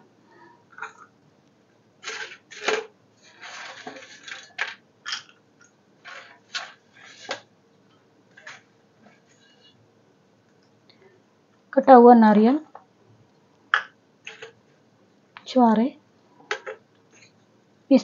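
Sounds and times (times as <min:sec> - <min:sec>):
rustling scrape: 0:02.0 - 0:04.6, 0:06.0 - 0:07.5, 0:08.3 - 0:09.8.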